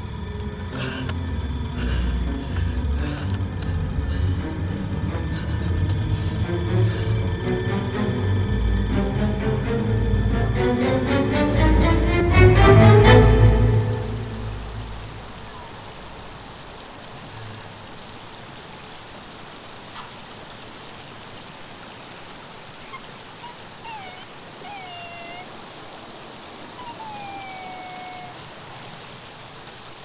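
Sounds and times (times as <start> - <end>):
river running over stones: 13.1 - 30.0
whistle-like falling calls: 23.4 - 28.5, 29.4 - 30.0.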